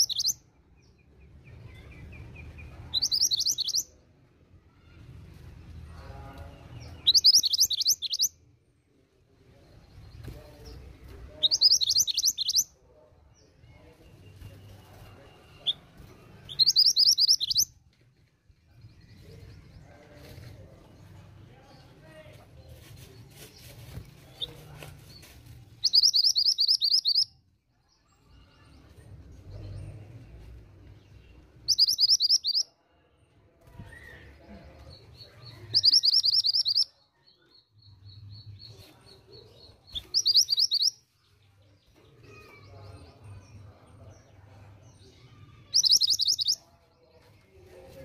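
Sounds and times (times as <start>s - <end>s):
bird trilling: 3.0s - 3.9s, 7.1s - 8.3s, 16.5s - 17.7s, 25.8s - 27.3s, 31.7s - 32.6s, 35.7s - 36.9s, 40.0s - 41.0s, 45.6s - 46.6s.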